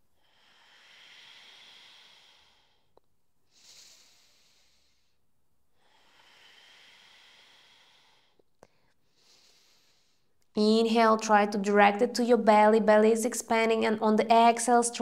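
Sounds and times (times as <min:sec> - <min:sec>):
faint breathing through the nose: 0:00.2 - 0:05.2, 0:05.8 - 0:10.4.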